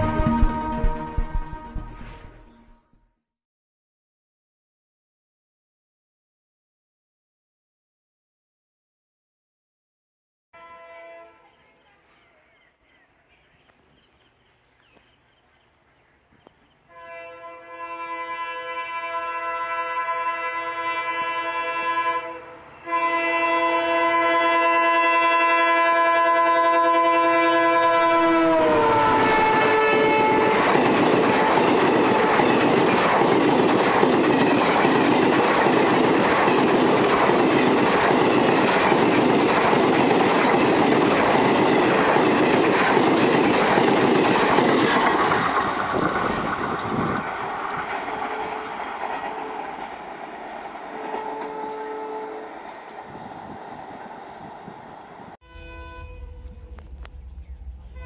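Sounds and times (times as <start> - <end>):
locomotive horn: 0.0 - 2.1, 10.6 - 11.5, 16.9 - 32.6, 50.9 - 52.6, 55.4 - 57.1
train wheel clatter: 29.9 - 51.6.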